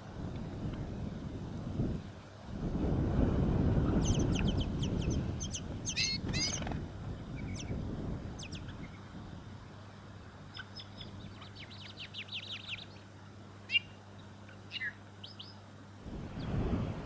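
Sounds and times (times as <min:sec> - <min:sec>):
wind rumble on microphone: 0:00.0 - 0:12.0, 0:16.0 - 0:17.0
high thin bird chirps: 0:14.7 - 0:15.6.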